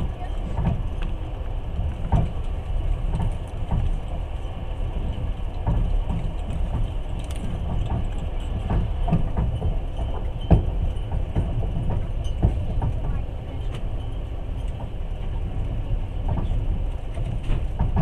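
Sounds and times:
train wheels rumbling: 0.0 - 18.0
knocks and rattles: 5.6 - 13.8, 16.2 - 18.0.

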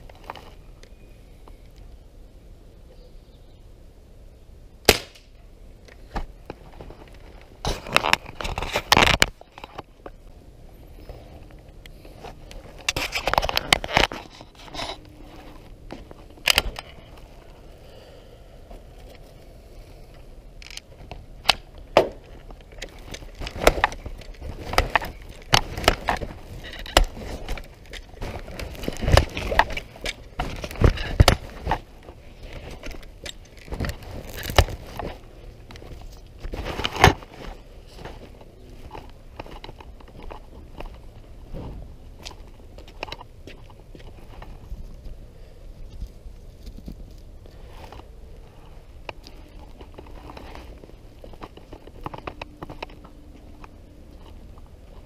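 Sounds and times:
rifle handling clicks and knocks: 11.4 - 17.3, 20.1 - 41.0, 49.0 - 55.0.

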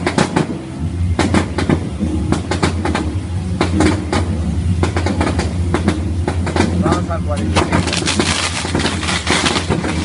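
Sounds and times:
fireworks bangs and crackles: 7.6 - 10.0.

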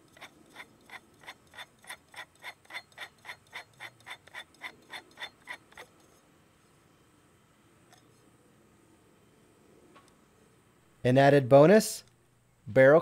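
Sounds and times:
threads ticking while screwing: 0.0 - 6.1.

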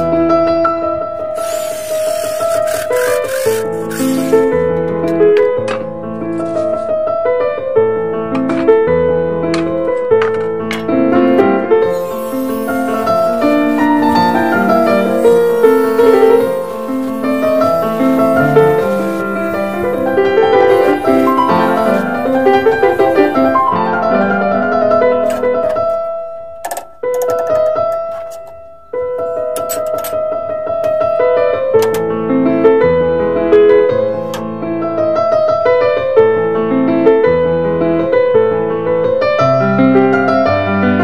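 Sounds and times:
piano music: 0.0 - 26.6.

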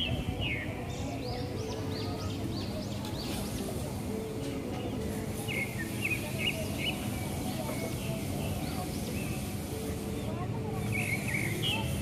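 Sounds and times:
small birds chirping: 4.8 - 12.0.

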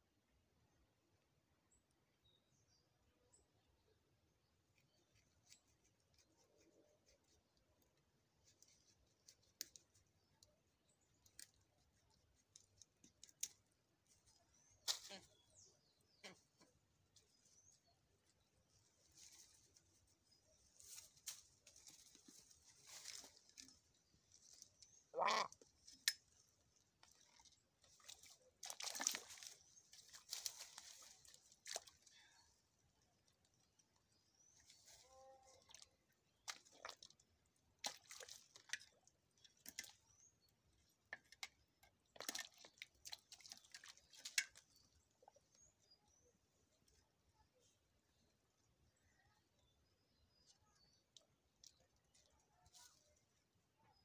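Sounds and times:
water splashing and squelching: 21.5 - 34.9, 35.5 - 45.6
bleating animal call: 25.2 - 25.6.

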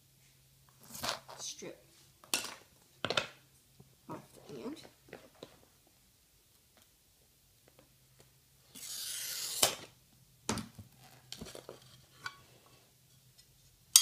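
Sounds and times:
glass cutter scoring hiss: 8.7 - 9.8.

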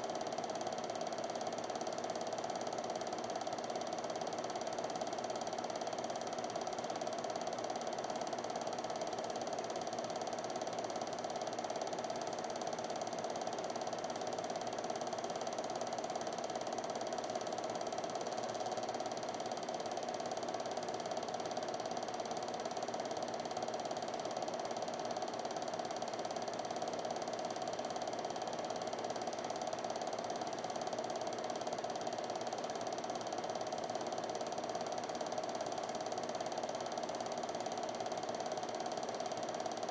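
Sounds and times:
film projector running: 0.0 - 39.9.

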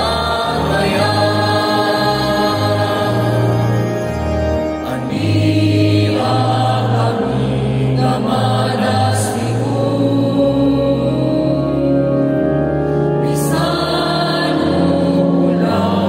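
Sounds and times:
instrumental accompaniment: 0.0 - 10.2
choir singing a hymn: 0.0 - 16.0.

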